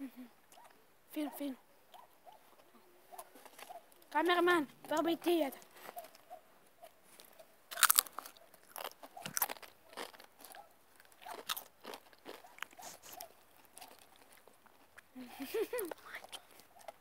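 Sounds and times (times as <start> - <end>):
crisps being crunched: 7.7 - 15.0.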